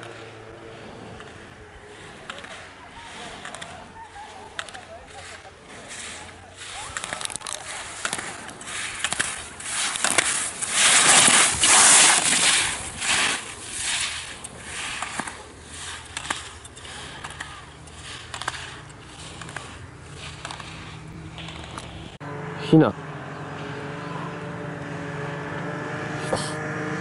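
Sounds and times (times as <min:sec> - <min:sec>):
skis scraping on snow: 0:00.0 - 0:22.2
gate poles clacking: 0:06.0 - 0:22.2.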